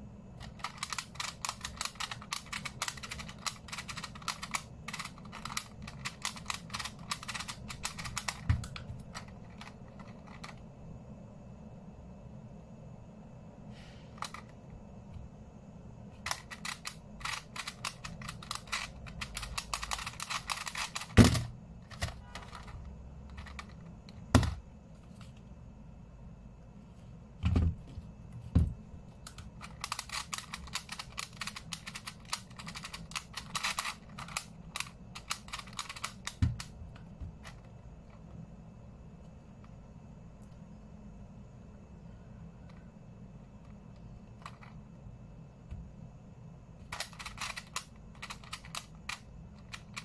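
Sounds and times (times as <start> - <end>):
rapid clicking of puzzle pins: 0.4 - 10.6, 16.2 - 23.8, 29.3 - 36.7, 46.9 - 50.0.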